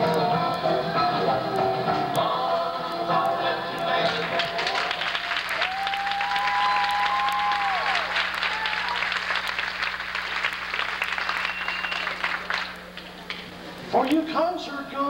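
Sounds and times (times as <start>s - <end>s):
audience applauding: 3.9s - 13.5s
long held cheer: 4.6s - 12.7s.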